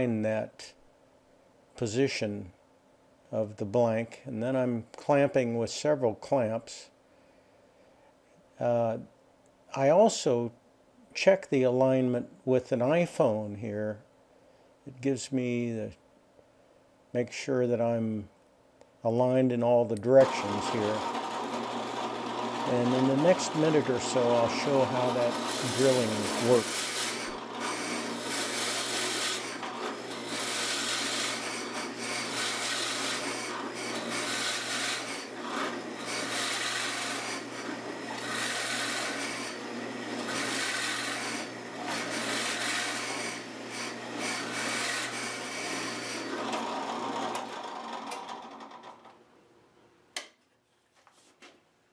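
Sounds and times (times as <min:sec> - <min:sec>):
drill bit rasping into wood: 0:20.2 - 0:47.6
drill press motor hum: 0:20.2 - 0:49.2.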